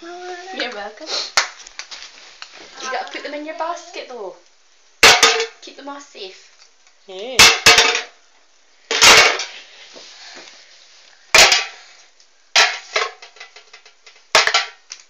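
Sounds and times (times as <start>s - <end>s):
eggs clattering into metal bucket: 7.4s - 8.2s, 12.6s - 15.0s.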